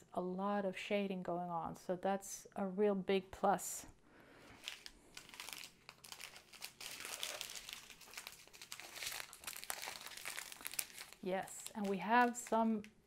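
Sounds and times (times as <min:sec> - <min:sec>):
plastic bags crinkling: 0:04.4 - 0:13.0.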